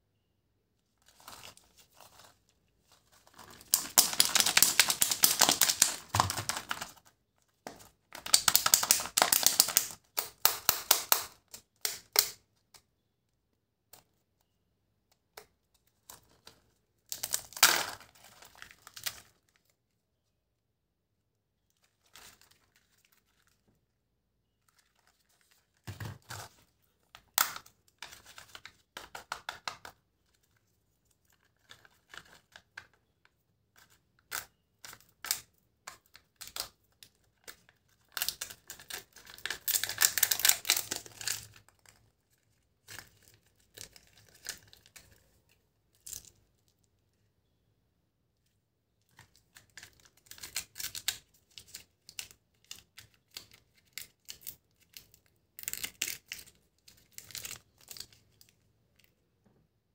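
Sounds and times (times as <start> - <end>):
candy wrappers crinkling: 1.0 - 7.1, 7.7 - 12.4, 17.1 - 19.7, 33.8 - 46.4, 49.1 - 59.1.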